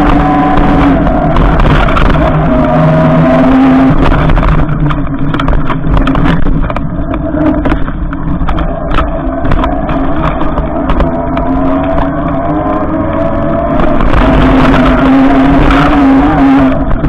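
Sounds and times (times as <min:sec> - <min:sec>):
electric motor whine: 0:00.0 - 0:06.2, 0:06.8 - 0:17.0
bike knocking and rattling: 0:00.0 - 0:12.0
tyres rushing on snow: 0:00.0 - 0:17.0
wind: 0:00.0 - 0:17.0.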